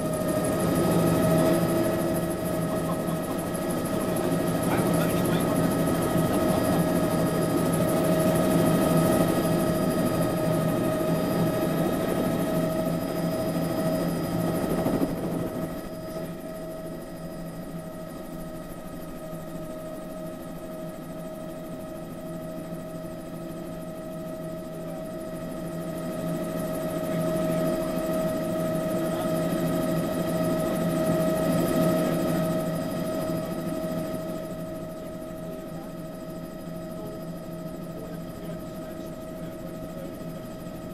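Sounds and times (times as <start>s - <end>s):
helicopter rotors rushing: 0.0s - 40.9s
helicopter turbine whine: 0.0s - 40.9s.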